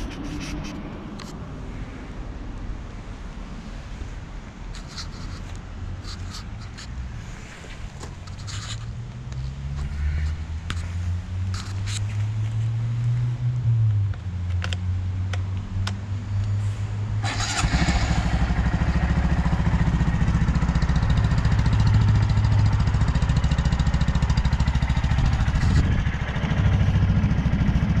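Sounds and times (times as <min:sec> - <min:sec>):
motorcycle engine starting and idling: 0:17.2 - 0:28.0.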